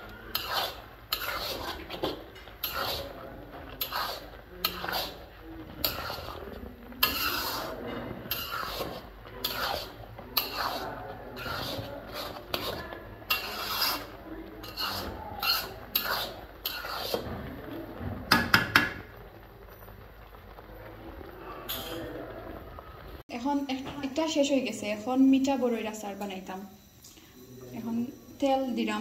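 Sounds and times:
spoon scraping in pan: 0.0 - 17.7, 21.5 - 22.2
spoon knocking on pan: 18.3 - 19.0.

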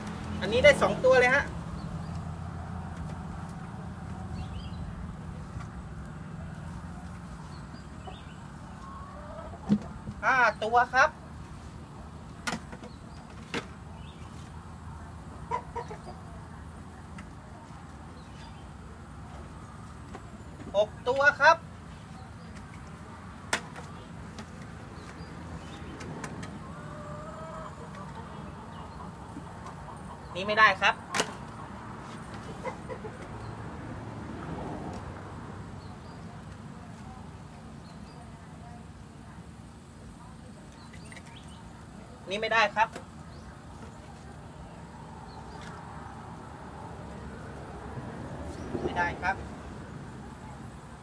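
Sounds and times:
faint outdoor background: 0.0 - 51.0.

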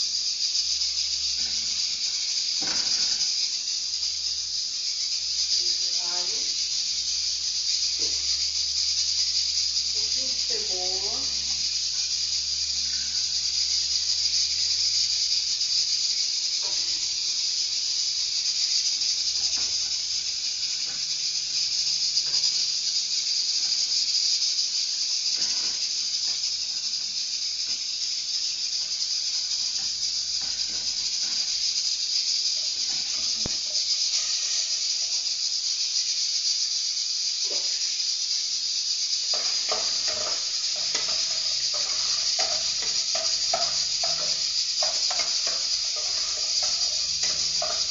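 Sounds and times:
pork fat sizzling in a pan: 0.0 - 47.9
spoon clinks and scrapes: 39.3 - 47.9.

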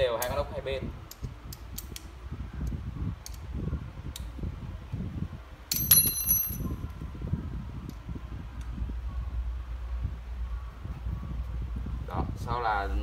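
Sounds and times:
metal parts and tools handled: 5.7 - 6.7
metal tool clinking with ring: 5.7 - 6.8.

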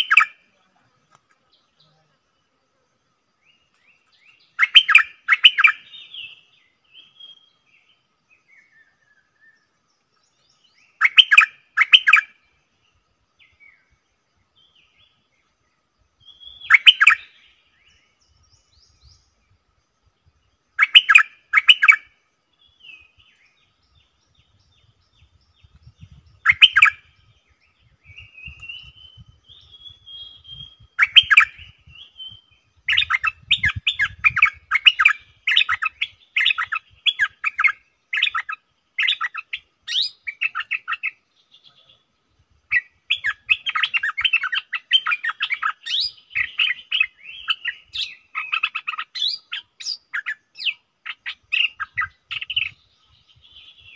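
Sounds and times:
bird chattering notes: 0.0 - 0.4, 4.5 - 5.8, 26.0 - 27.0, 30.4 - 31.6, 32.8 - 41.2, 42.7 - 52.8
bulbul bubbly calls: 0.0 - 0.4, 4.6 - 5.8, 11.0 - 12.3, 16.4 - 17.3, 20.8 - 22.0, 26.0 - 27.0, 30.4 - 41.2, 42.7 - 52.8.

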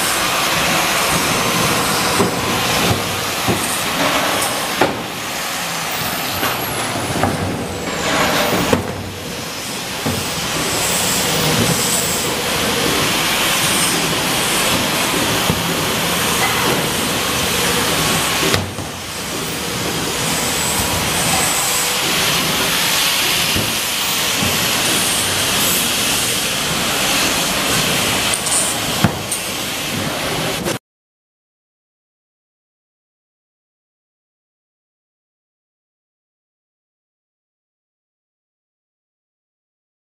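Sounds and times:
hissing machinery din: 0.0 - 30.8.

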